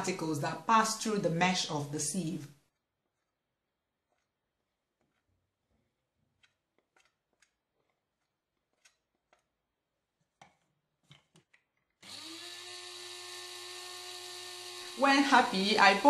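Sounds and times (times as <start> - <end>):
electric coffee grinder motor: 12.0 - 16.0.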